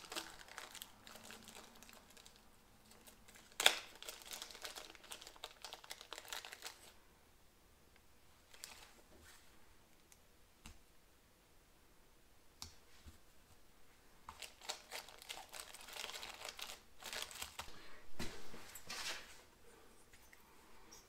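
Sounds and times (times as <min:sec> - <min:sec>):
crinkly rustling of packaging: 0:00.0 - 0:07.0, 0:08.5 - 0:09.0, 0:14.3 - 0:17.9.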